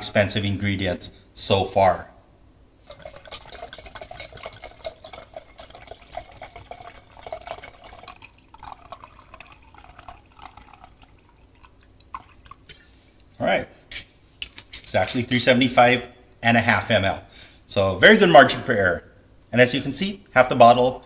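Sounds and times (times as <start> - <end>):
liquid pouring into a glass carafe: 2.8 - 13.3.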